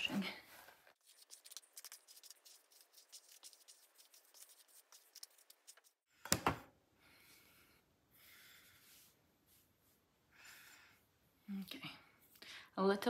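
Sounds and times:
hairbrush raking through hair: 0:01.0 - 0:06.0
hands rustling through hair: 0:01.0 - 0:06.0.

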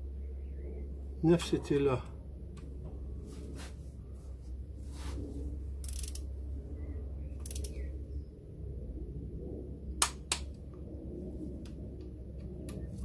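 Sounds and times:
steady low hum: 0:00.0 - 0:13.0
ratchet wrench clicks: 0:05.8 - 0:06.2, 0:07.4 - 0:07.8.

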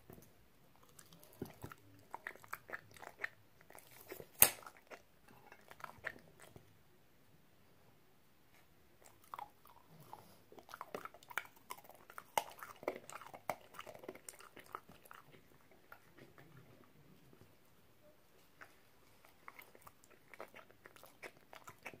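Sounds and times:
wet chewing: 0:00.7 - 0:06.7, 0:09.0 - 0:17.6, 0:18.4 - 0:22.0.

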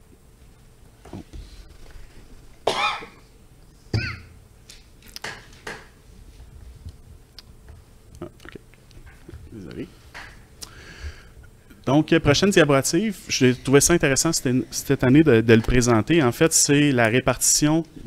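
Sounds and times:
person coughing: 0:02.7 - 0:03.2, 0:04.0 - 0:04.4.

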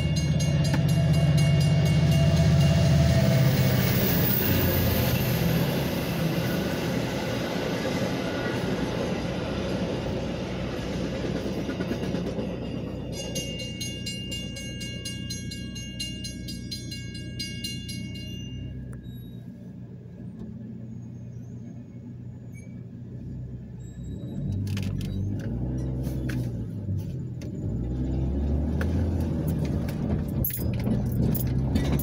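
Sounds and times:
railroad crossing bell ringing: 0:00.0 - 0:07.0, 0:08.2 - 0:19.6.

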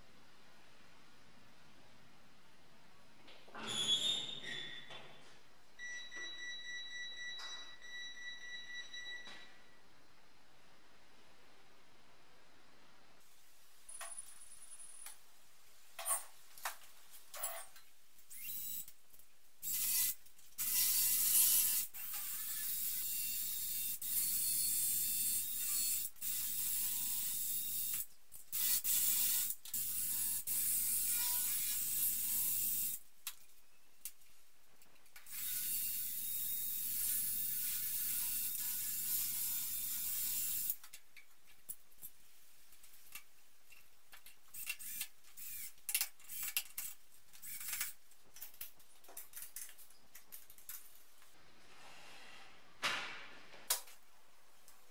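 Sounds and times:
ratchet-like tool whirring: 0:19.6 - 0:33.0, 0:35.3 - 0:40.8, 0:44.5 - 0:48.0.

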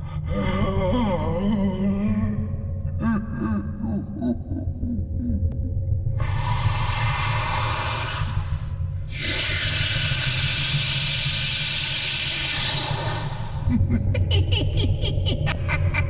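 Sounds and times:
low rumble: 0:00.0 - 0:09.2.

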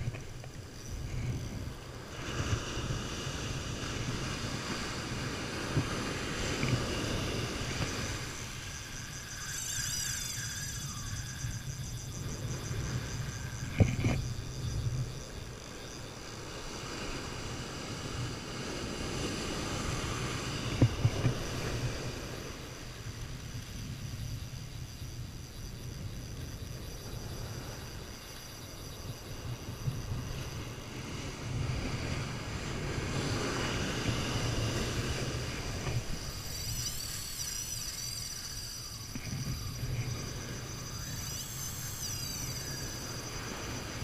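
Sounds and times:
wind buffeting microphone: 0:00.0 - 0:44.0
surf washing onto beach: 0:01.0 - 0:08.9, 0:29.4 - 0:36.6.

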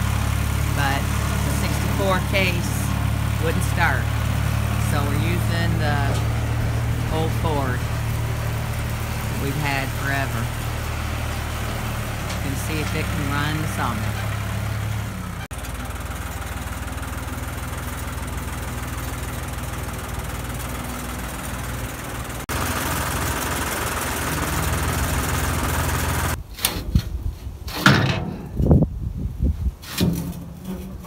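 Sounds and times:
tractor engine running: 0:00.0 - 0:26.5
sharp clunks and knocks: 0:27.7 - 0:28.7.

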